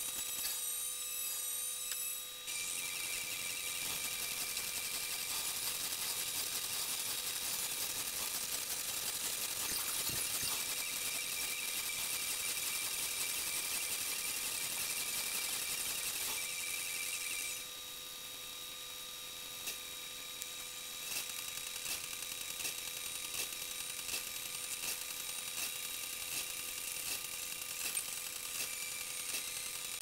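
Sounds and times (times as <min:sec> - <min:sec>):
electrical whine: 0:00.0 - 0:30.0.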